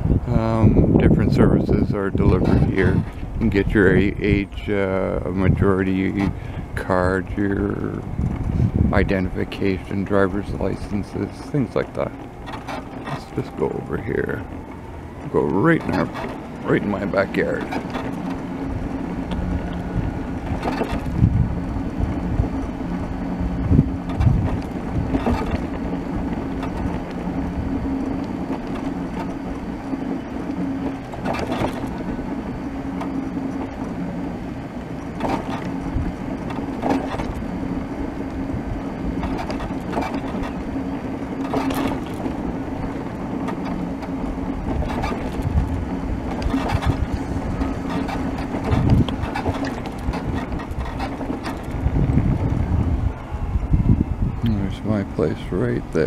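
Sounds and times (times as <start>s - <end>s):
wheelchair motors whining: 0.0s - 56.0s
wheels rumbling on asphalt: 0.0s - 56.0s
short knocks and rattles: 7.9s - 34.0s, 34.8s - 37.6s, 39.1s - 52.7s.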